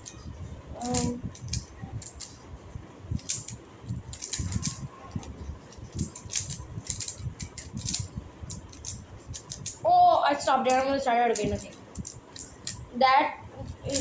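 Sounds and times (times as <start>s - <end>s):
puzzle cubes clicking: 0.8s - 2.4s, 3.2s - 9.8s, 10.7s - 12.8s.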